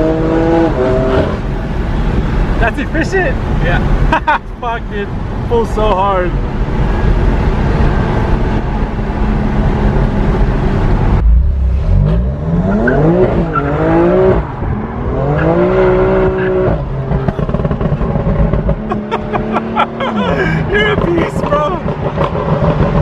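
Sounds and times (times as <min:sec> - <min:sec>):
car engine accelerating from cabin: 0:07.0 - 0:23.0.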